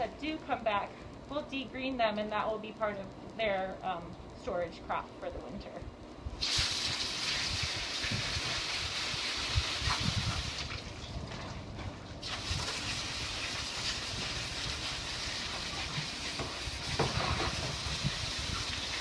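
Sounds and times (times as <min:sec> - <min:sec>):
hose nozzle spraying water: 0:06.4 - 0:10.8, 0:12.2 - 0:19.0.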